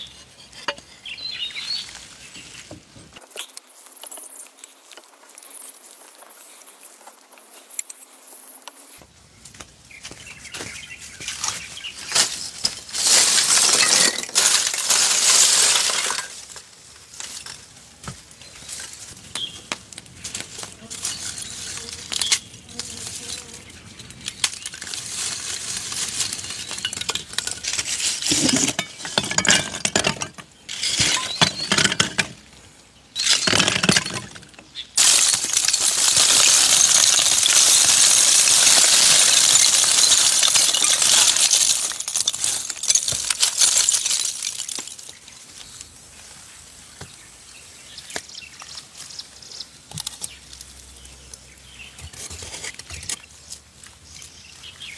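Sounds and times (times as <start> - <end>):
charcoal clinking: 12.1 - 16.6, 24.0 - 32.4, 33.2 - 45.2
charcoal pouring rattle: 12.1 - 16.7, 24.2 - 32.4, 33.2 - 45.2.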